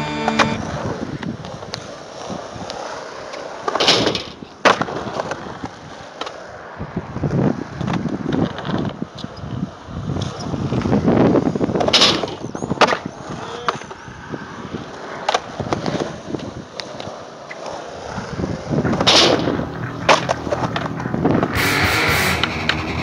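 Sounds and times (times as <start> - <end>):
skateboard clacking: 0.0 - 6.9, 7.6 - 23.0
skateboard wheels rolling on concrete: 0.0 - 23.0.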